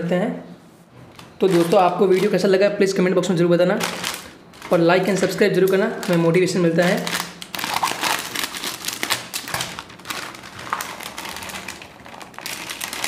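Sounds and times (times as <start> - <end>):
wrapper rustling: 1.1 - 2.7, 3.7 - 13.0
scissors cutting plastic packet: 3.8 - 13.0.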